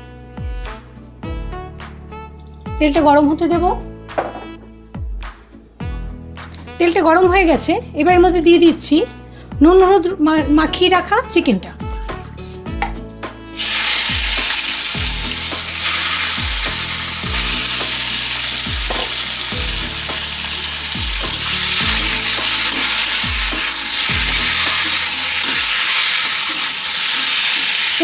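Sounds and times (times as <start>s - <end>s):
background music with steady beat: 0.0s - 28.0s
chicken sizzling in hot oil: 13.6s - 28.0s
spatula turning food: 13.6s - 28.0s.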